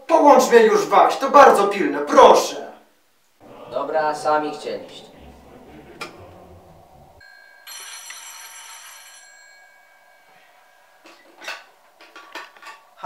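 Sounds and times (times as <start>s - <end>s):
telephone bell ringing: 7.2s - 11.3s.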